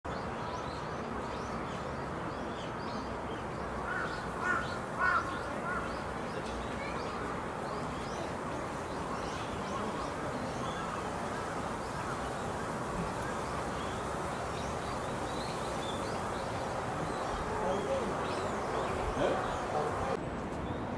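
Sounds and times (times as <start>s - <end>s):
steady hiss: 3.2s - 20.2s
loud bird calls: 3.4s - 20.2s
bird chirps: 11.8s - 20.2s.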